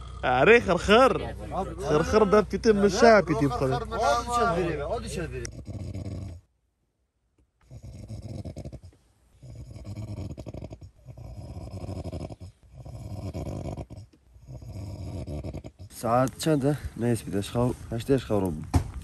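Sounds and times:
person snoring: 0.0 - 0.4.

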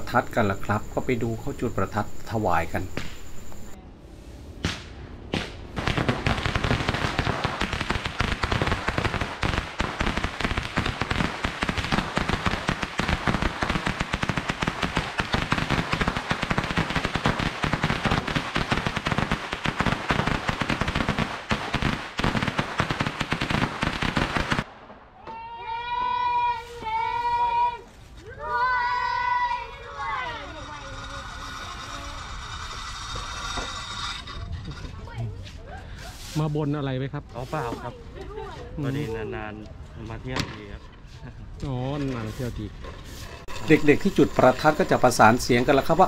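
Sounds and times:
firecrackers crackling: 0.0 - 3.8, 4.6 - 25.3, 26.2 - 35.4, 39.7 - 46.0
single firecracker bangs: 2.8 - 3.7, 4.6 - 25.4.

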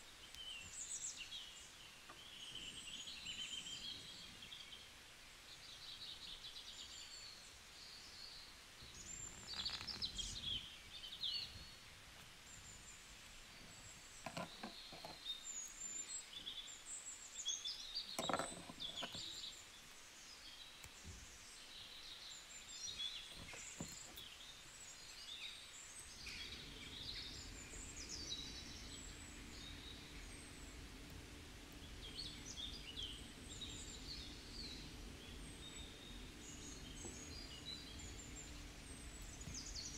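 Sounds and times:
small birds chirping: 0.0 - 39.9
low steady hum: 18.4 - 39.9.

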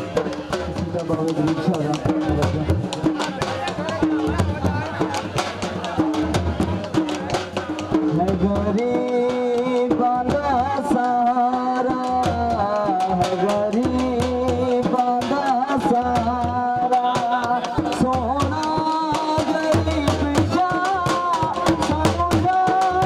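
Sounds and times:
hand drum beat: 0.0 - 23.0
man singing into a microphone: 7.9 - 23.0.

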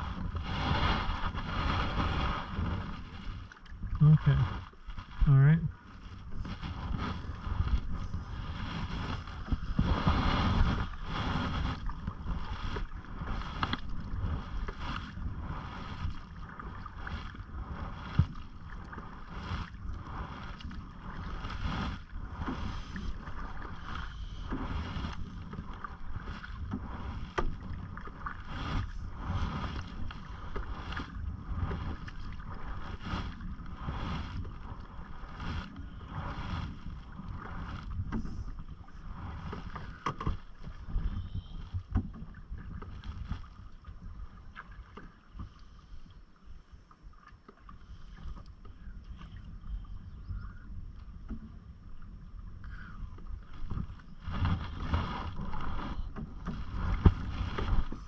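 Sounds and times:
paddle strokes splashing: 0.0 - 49.8, 52.7 - 58.0
water lapping at hull: 0.0 - 58.0
wind rumbling on microphone: 0.0 - 58.0.

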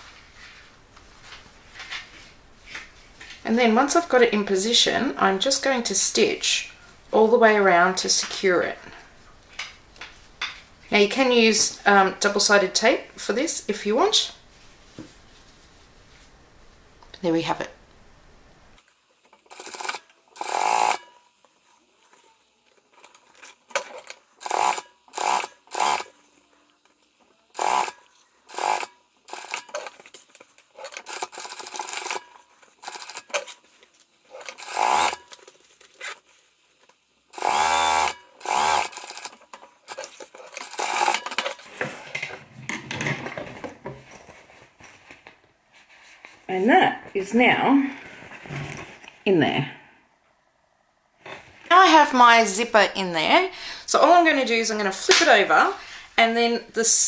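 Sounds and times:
sewing machine stitching: 19.5 - 21.1, 24.4 - 26.1, 27.6 - 30.0, 30.8 - 33.5, 34.4 - 35.3, 37.4 - 41.5.

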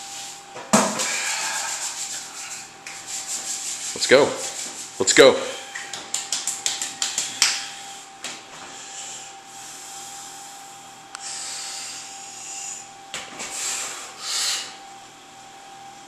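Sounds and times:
man breathing hard: 1.0 - 2.3, 8.6 - 10.6, 11.2 - 14.8.

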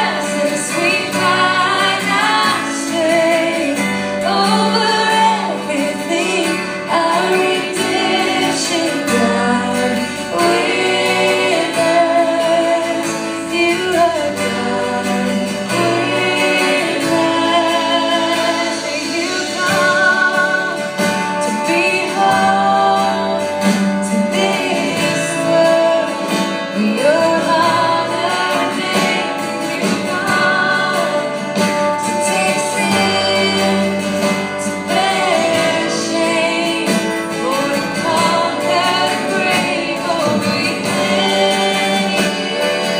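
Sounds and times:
band accompaniment: 0.0 - 42.9
electric guitar: 0.0 - 42.9
strummed acoustic guitar: 0.0 - 42.9
woman singing: 0.0 - 42.9.

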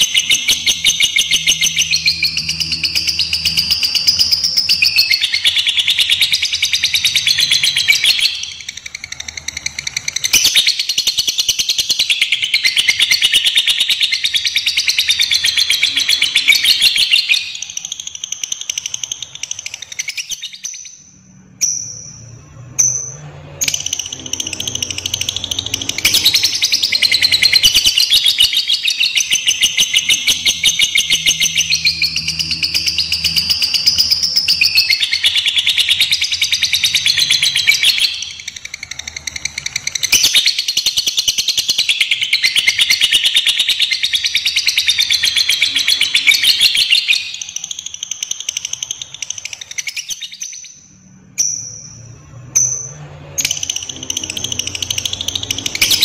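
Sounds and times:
lovebird chattering: 0.0 - 21.0.

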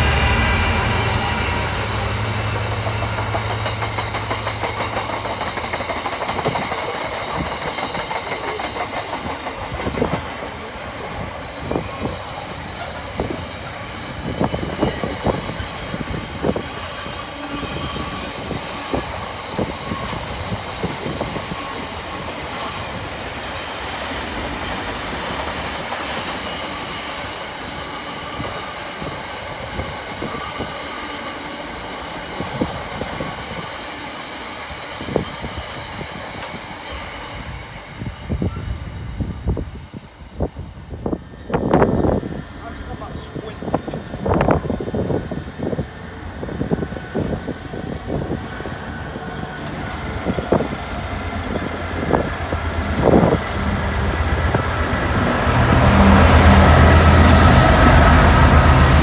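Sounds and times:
freight wagons rumbling: 0.0 - 7.5
diesel locomotive engine hum: 0.0 - 31.4, 34.4 - 59.0
wheels clacking over rail joints: 0.0 - 31.5.

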